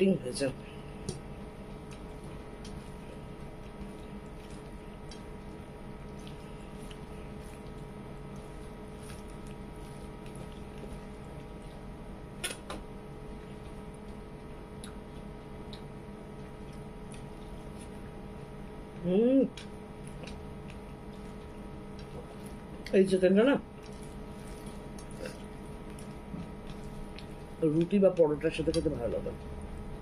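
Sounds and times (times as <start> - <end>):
steady background hum: 0.0 - 30.0
chewing: 1.6 - 11.9, 13.3 - 18.0, 19.5 - 22.9, 23.7 - 27.6.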